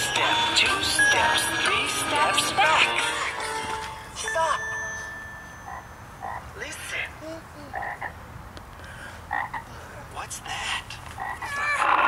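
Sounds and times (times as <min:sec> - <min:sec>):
frogs croaking: 0:05.7 - 0:06.6, 0:07.7 - 0:08.2, 0:09.3 - 0:09.7, 0:11.2 - 0:12.0.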